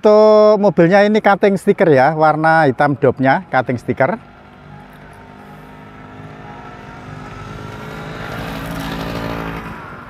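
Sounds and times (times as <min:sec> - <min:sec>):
motor vehicle passing: 0:02.3 - 0:10.0.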